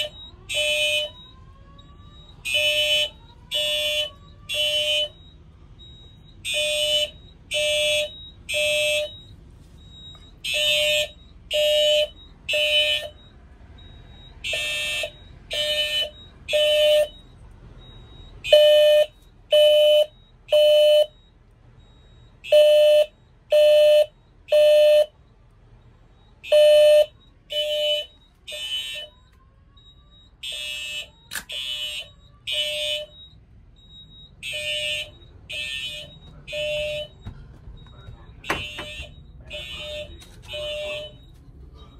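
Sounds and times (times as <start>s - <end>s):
fire alarm evacuation tone: 0.0s - 41.9s.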